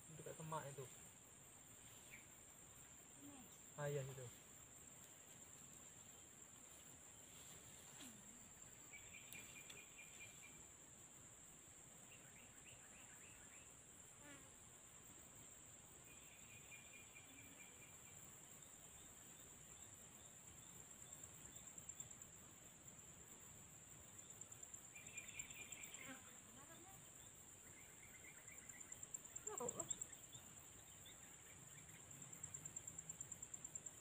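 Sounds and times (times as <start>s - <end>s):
insect chirping trills: 0.0s - 34.0s.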